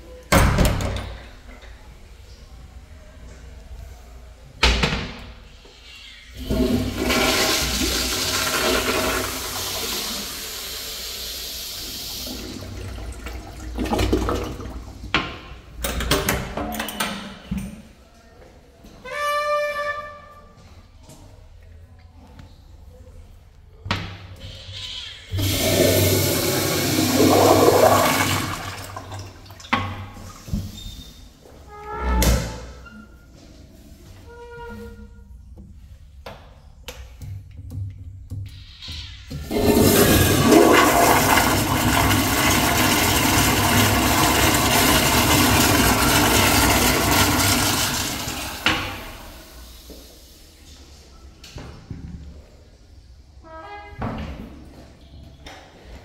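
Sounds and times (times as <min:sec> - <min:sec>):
toilet flushing: 0:06.3 - 0:15.4, 0:25.3 - 0:30.5, 0:39.0 - 0:50.0.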